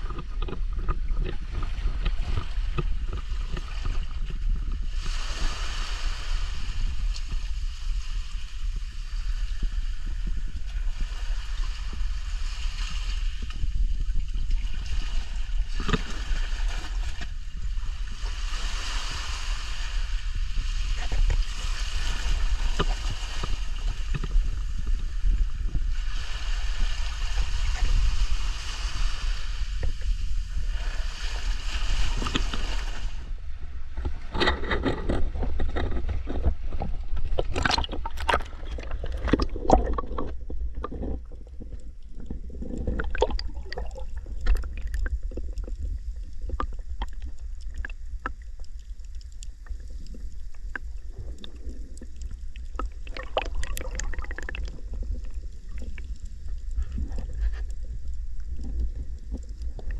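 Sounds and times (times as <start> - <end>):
muffled underwater crackling clicks: 0.0 - 4.8, 15.6 - 17.5, 22.6 - 25.8, 32.1 - 33.0, 34.0 - 59.9
low rumble of water: 0.0 - 59.9
sea waves washing: 1.3 - 34.4, 36.2 - 59.9.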